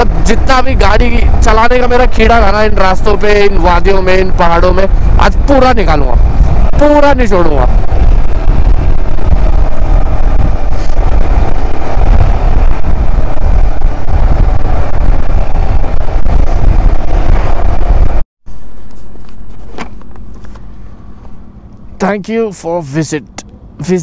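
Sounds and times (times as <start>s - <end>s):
wind rushing over microphone: 0.0s - 18.3s.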